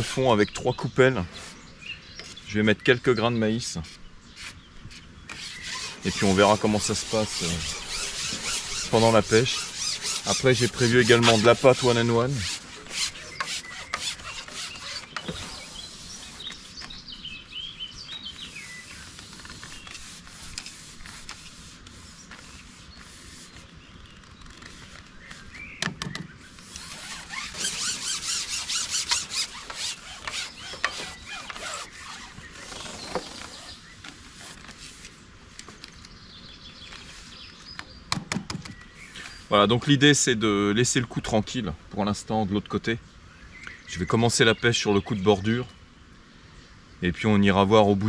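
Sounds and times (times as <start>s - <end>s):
fishing pole rubbing and squeaking: 4.4s - 16.9s, 26.6s - 33.8s
scraping: 5.3s - 16.9s, 26.6s - 33.8s.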